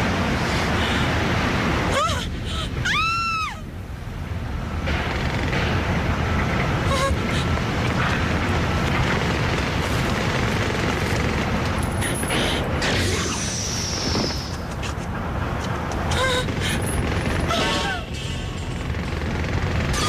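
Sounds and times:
steady low rumble: 0:03.5 - 0:20.0.

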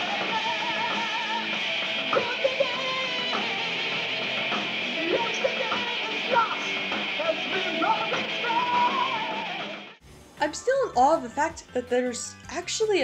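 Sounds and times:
electric guitars: 0:00.0 - 0:10.0
drums: 0:00.0 - 0:13.0
man singing: 0:05.0 - 0:09.5.

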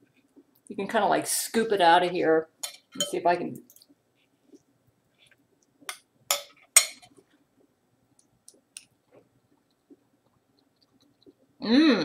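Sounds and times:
metal spoon clinking on plate: 0:02.6 - 0:03.2, 0:05.9 - 0:07.1.

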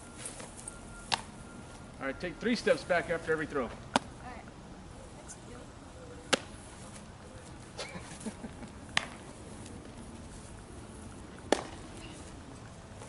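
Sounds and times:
baseball popping into glove: 0:01.1 - 0:01.3, 0:06.3 - 0:06.6, 0:08.9 - 0:09.8, 0:11.5 - 0:11.9.

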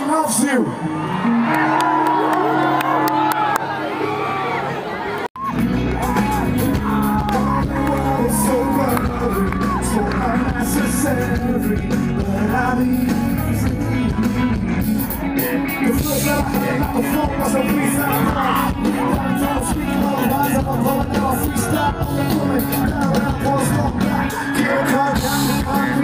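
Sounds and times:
live rock band over loudspeakers: 0:00.0 - 0:26.0
man singing into a microphone: 0:06.7 - 0:14.7, 0:15.4 - 0:26.0.

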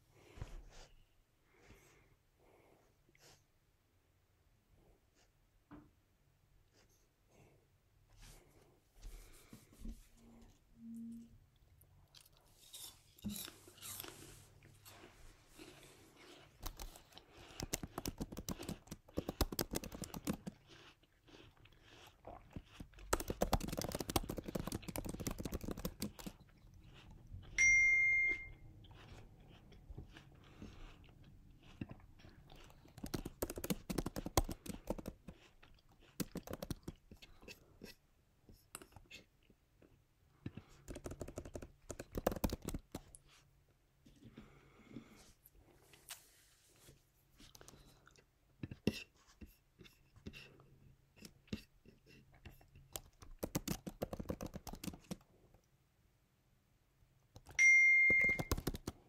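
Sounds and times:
keyboard typing: 0:17.7 - 0:20.5, 0:23.1 - 0:26.4, 0:33.0 - 0:35.4, 0:36.1 - 0:37.0, 0:40.9 - 0:43.1, 0:52.9 - 0:55.2, 0:57.3 - 0:59.0
electronic notification ding: 0:27.6 - 0:28.5, 0:57.6 - 0:58.5.

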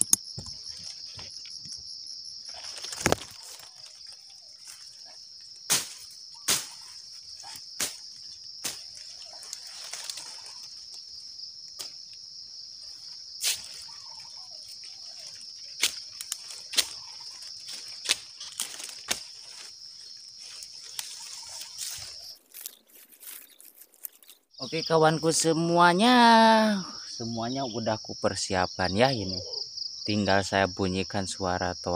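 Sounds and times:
high-pitched insect drone: 0:00.0 - 0:31.9
machete strikes cracking stalks: 0:05.6 - 0:10.2, 0:11.8 - 0:12.0, 0:13.4 - 0:13.8, 0:15.3 - 0:19.6.

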